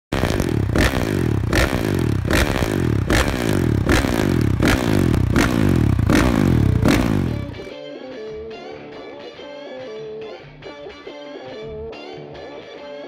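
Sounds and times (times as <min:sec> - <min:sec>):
motocross engine revving: 0:00.1 - 0:07.7.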